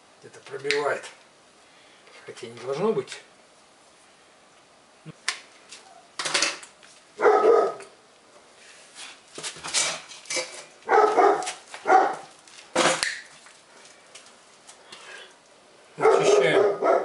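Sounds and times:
dog barking: 7.2 - 7.9, 10.9 - 12.3, 16.0 - 17.0.

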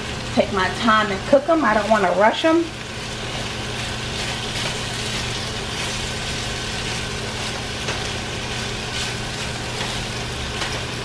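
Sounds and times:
potatoes sizzling in skillet: 0.0 - 11.0
spatula scraping skillet: 3.0 - 11.0.

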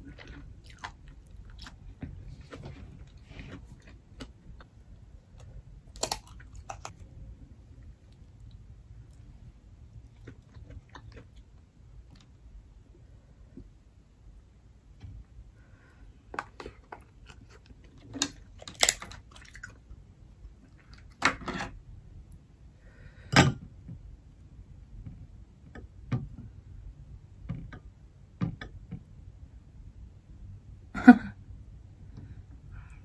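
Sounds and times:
chewing: 0.0 - 7.1, 10.0 - 12.3.

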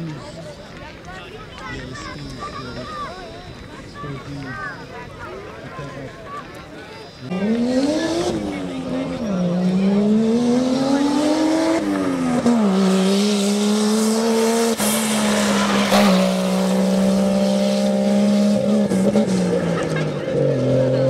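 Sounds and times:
jeep engine revving: 7.2 - 21.0.

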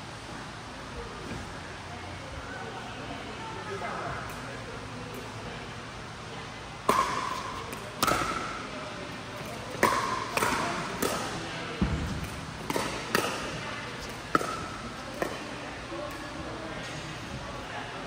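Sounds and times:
paddles hitting plastic ball: 6.9 - 8.5, 9.4 - 15.4.

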